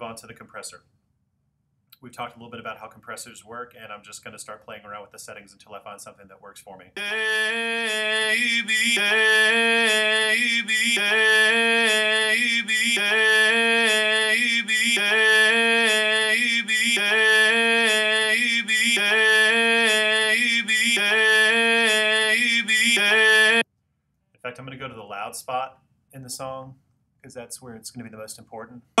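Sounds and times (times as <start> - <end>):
looped singing voice phrase: 7.0 - 23.6.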